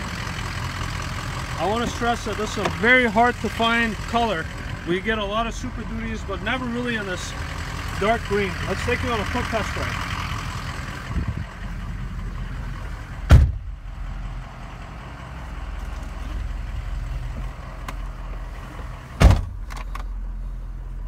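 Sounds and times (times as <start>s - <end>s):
diesel engine idling: 0.0s - 21.0s
truck doors shutting: 13.2s - 13.8s, 19.2s - 20.1s.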